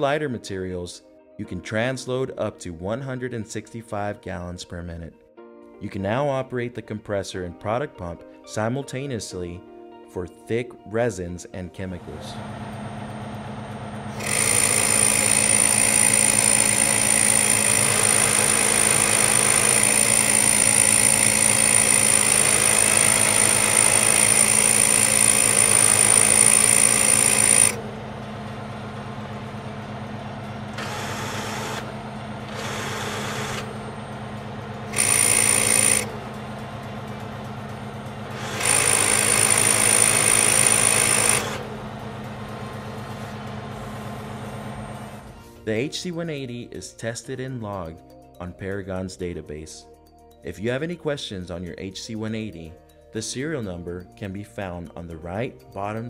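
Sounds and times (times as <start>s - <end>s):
hydraulic pump low hum: 12.3s - 45.4s.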